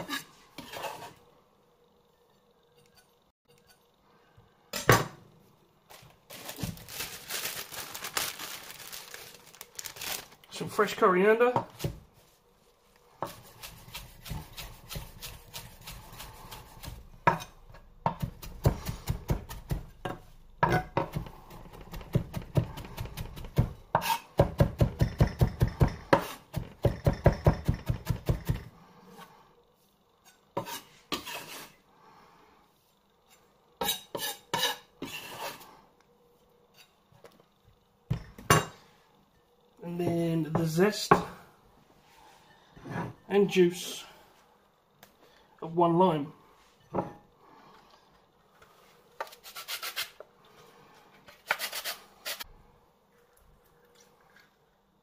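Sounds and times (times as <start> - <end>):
knife chopping herbs: 13.2 - 28.6.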